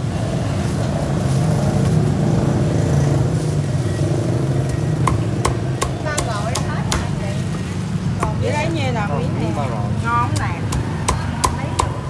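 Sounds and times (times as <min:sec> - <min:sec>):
vehicle engine droning: 0:00.0 - 0:12.0
cleaver striking chopping block: 0:05.0 - 0:07.2, 0:08.2 - 0:08.5, 0:10.3 - 0:12.0.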